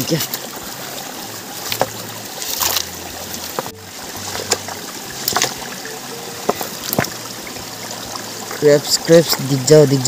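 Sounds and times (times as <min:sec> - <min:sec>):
stream water trickling: 0:00.0 - 0:10.0
stones clacking in water: 0:01.6 - 0:07.2.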